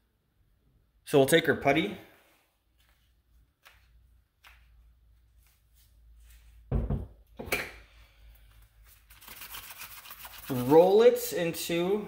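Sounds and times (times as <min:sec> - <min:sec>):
knocks on countertop: 0:06.7 - 0:07.7.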